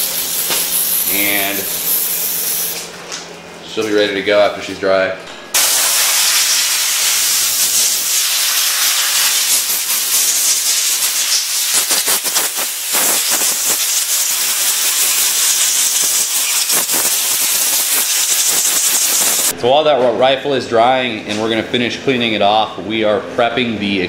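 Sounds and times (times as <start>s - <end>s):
compressed air hissing: 0.0s - 2.8s, 5.6s - 19.5s.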